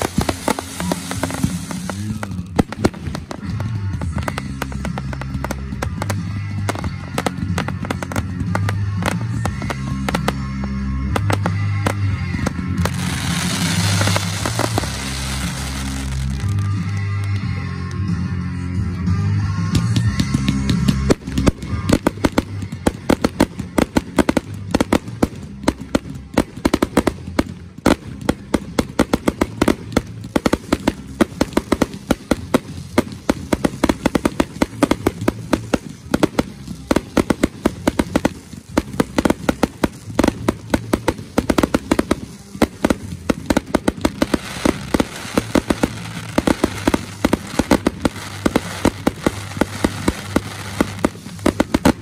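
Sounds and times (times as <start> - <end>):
fireworks bursting: 0.0 - 17.7, 19.7 - 52.0
fireworks crackle: 0.0 - 18.0, 19.7 - 52.0.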